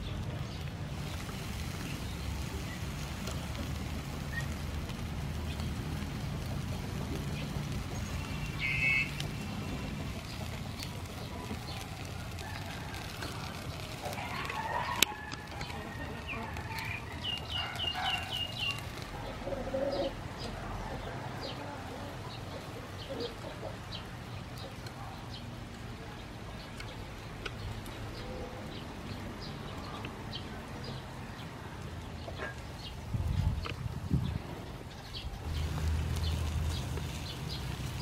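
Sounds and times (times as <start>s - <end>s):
chickens clucking: 1.0s - 25.2s.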